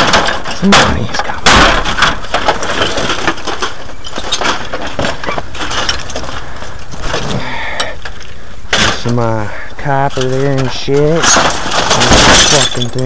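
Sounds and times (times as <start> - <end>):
television being broken apart: 0.0 - 6.4, 10.3 - 13.0
plastic and metal cracking: 0.0 - 9.3, 9.9 - 13.0.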